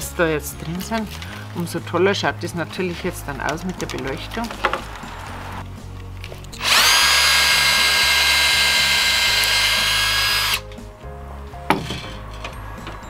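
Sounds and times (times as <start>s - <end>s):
electric drill whining: 6.6s - 10.7s.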